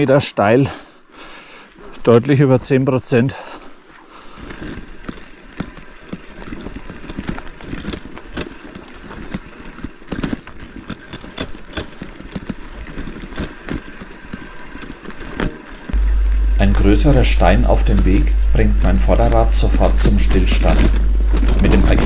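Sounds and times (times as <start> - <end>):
tyres crunching over stones: 3.8 - 22.0
bicycle rattling: 4.2 - 14.1, 14.8 - 22.0.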